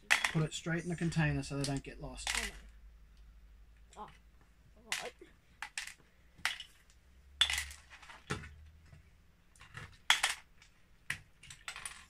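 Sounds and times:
plastic bricks clicking and clattering: 0.0s - 2.7s, 4.8s - 8.6s, 9.5s - 12.0s.

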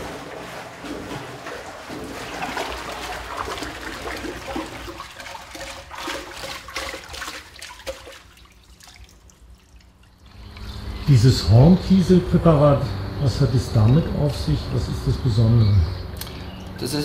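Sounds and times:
water sloshing in metal vat: 0.0s - 11.7s.

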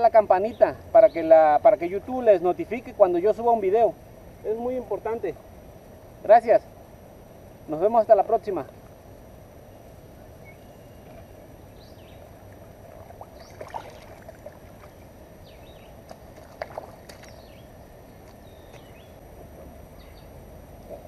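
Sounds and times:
small birds chirping: 9.6s - 12.6s, 13.2s - 19.2s, 19.9s - 21.0s
water splashing: 12.2s - 17.4s.

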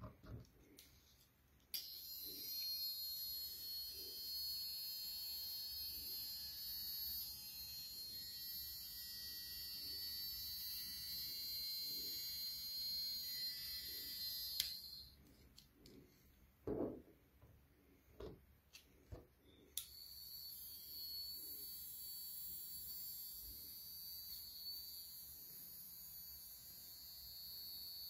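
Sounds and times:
toy car motor whine: 1.8s - 15.2s, 19.8s - 28.0s.

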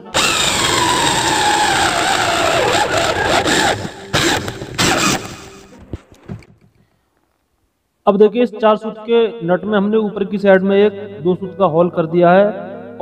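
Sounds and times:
electric drill whining: 0.0s - 5.8s.

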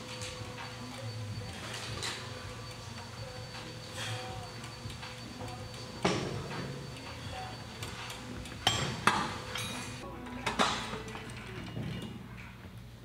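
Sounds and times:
faint background music: 0.0s - 13.0s.

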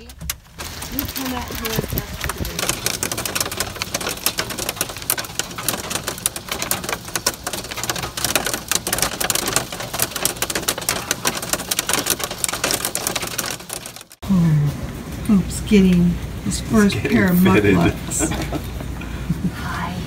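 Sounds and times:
hail pelting a car: 0.0s - 14.2s.

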